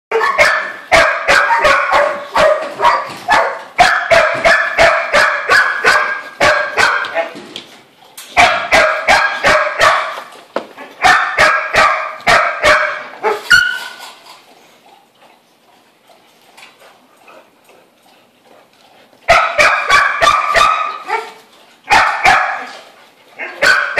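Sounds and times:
dog barking rapidly: 0.1s - 7.3s, 8.4s - 10.3s, 11.0s - 13.8s, 19.3s - 21.3s, 21.9s - 22.7s, 23.4s - 23.9s.

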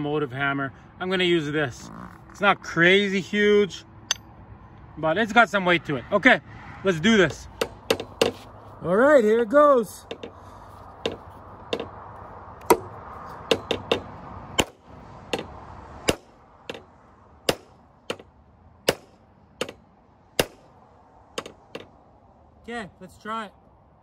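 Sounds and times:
hammer striking metal shaft: 4.1s - 4.3s.

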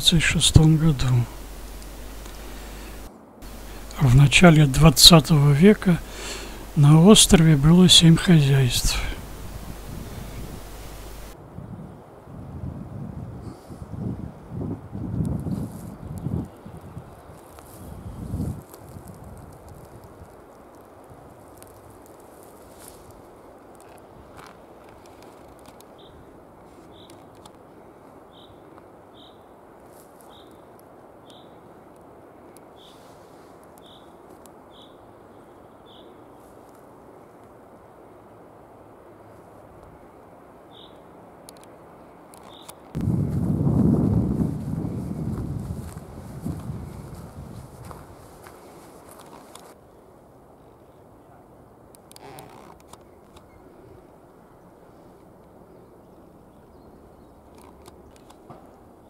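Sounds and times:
soft rushing noise: 0.0s - 11.4s
steady low rumble: 0.0s - 11.4s, 43.0s - 48.3s
sharp clicks and crackles: 1.3s - 4.0s, 51.9s - 53.5s
small bird calling: 4.7s - 11.4s.

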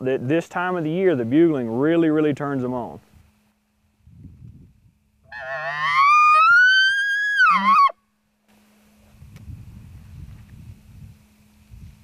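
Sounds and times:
elk bugling: 5.3s - 8.0s.

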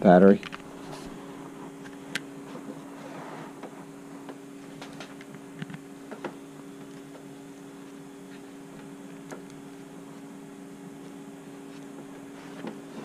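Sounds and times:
steady hum: 0.0s - 13.0s.

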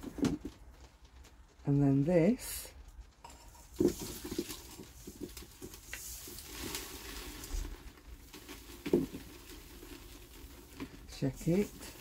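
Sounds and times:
granules rattling in a metal colander: 2.4s - 12.0s.

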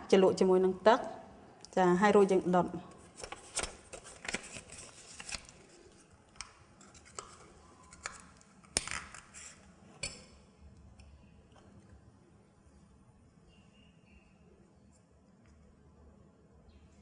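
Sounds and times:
paper strip rustling: 3.1s - 5.8s.

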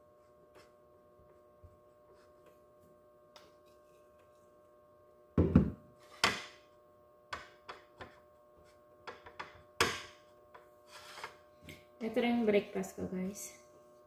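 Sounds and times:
firm knock: 5.4s - 5.8s
jar thunk on countertop: 5.4s - 5.8s.

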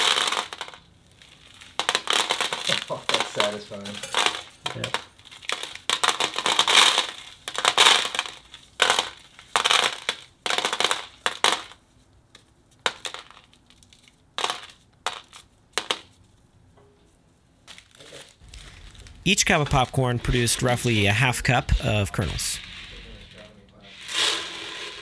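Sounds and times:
popcorn kernels rattling into bowl: 0.0s - 11.8s, 12.8s - 16.1s, 22.6s - 25.0s.

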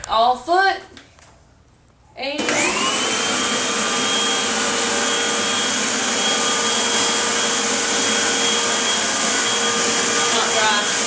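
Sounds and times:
vacuum cleaner running: 2.4s - 11.0s.

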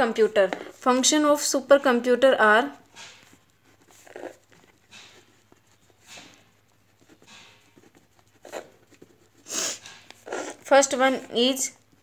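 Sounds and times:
pen scratching on paper: 2.8s - 12.0s.

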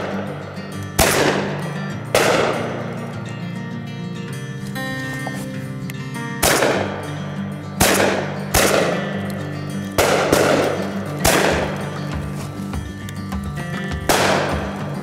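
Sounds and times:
shotgun shots echoing: 0.0s - 3.2s, 6.4s - 7.2s, 7.8s - 12.3s, 14.0s - 15.0s
background music: 0.0s - 15.0s.

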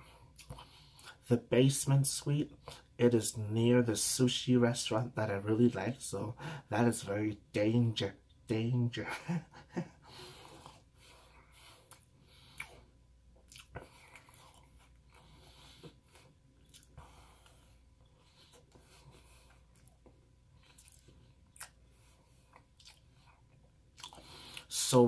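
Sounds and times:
chewing cookie crunches: 13.4s - 17.6s, 18.4s - 24.8s.

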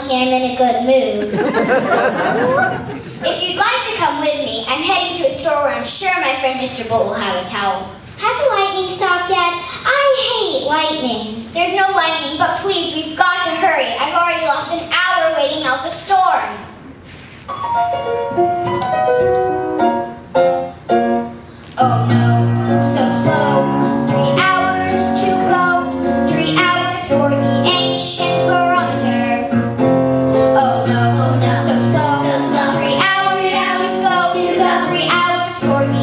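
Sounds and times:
piano: 17.4s - 36.0s
child singing: 21.8s - 29.5s, 30.4s - 36.0s
bass: 21.8s - 36.0s.

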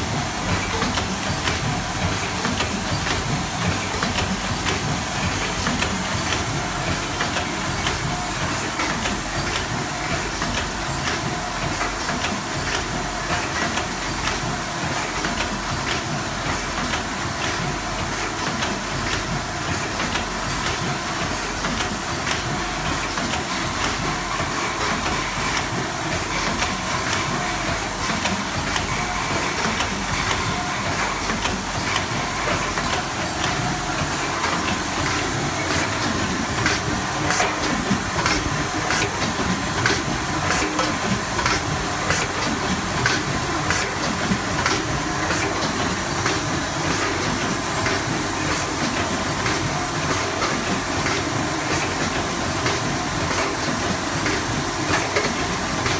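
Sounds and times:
packing machine clicking and clattering: 0.0s - 55.9s.

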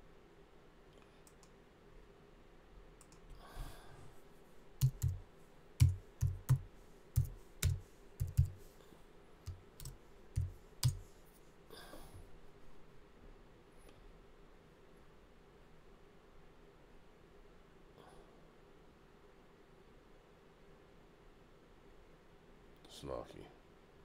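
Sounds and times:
keyboard keys clicking: 4.8s - 5.2s, 5.8s - 8.7s, 9.5s - 11.1s.

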